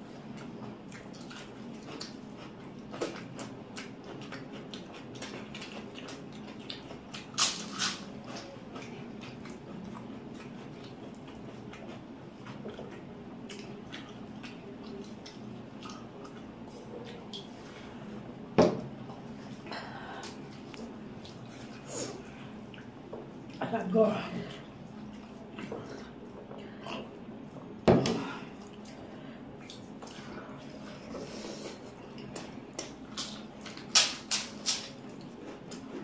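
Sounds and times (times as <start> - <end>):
wet chewing and smacking: 0.3 - 17.5, 28.6 - 36.0.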